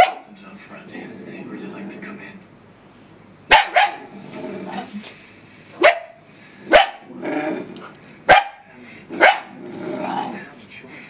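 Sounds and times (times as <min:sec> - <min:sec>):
puppy barking: 0:00.0 - 0:00.3, 0:03.5 - 0:04.1, 0:05.8 - 0:07.1, 0:08.3 - 0:09.6.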